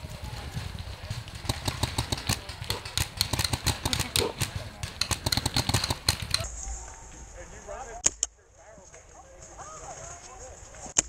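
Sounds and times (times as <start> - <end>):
paintball markers popping: 1.2 - 6.5.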